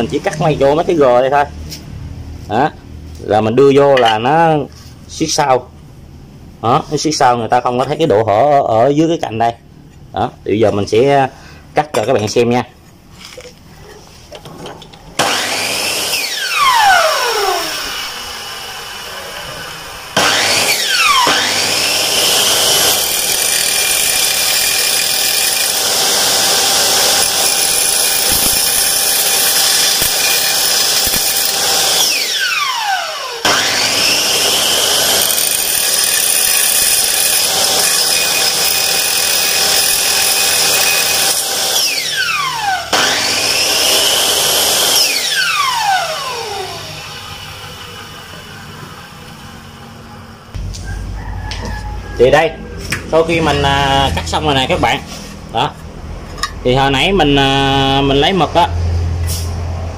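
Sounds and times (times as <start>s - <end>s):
miter saw cutting metal: 15.2s - 48.8s
saw blade spinning down whine: 15.2s - 54.6s.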